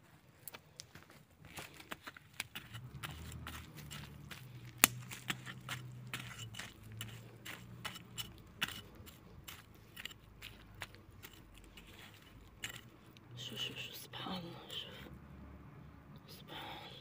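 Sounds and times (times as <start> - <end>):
garden tool crunching soil: 1.8 - 13.1.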